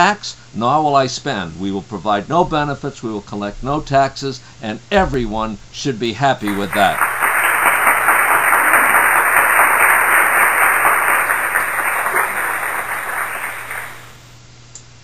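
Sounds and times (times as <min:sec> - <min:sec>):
crowd applause: 0:06.4 - 0:14.3.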